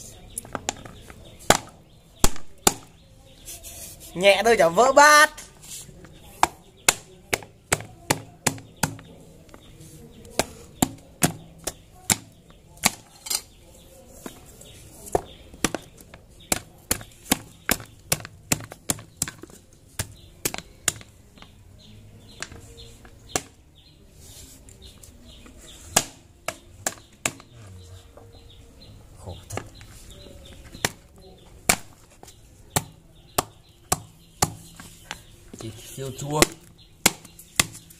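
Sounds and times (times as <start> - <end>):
wooden pestle pounding in bowl: 6.4 - 9.1, 15.2 - 21.1.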